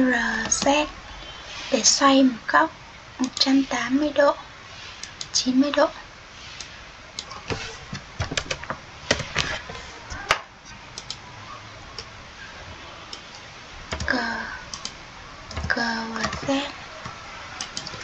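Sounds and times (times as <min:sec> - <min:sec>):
keyboard key presses: 0:07.2 - 0:10.4, 0:13.9 - 0:18.0.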